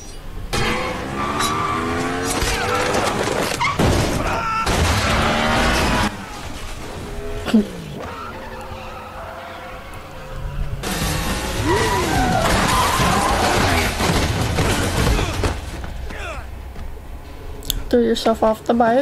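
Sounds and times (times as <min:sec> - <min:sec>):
motorcycle engines revving: 0:00.0 - 0:03.8, 0:04.6 - 0:16.6
tires screeching: 0:00.0 - 0:17.6.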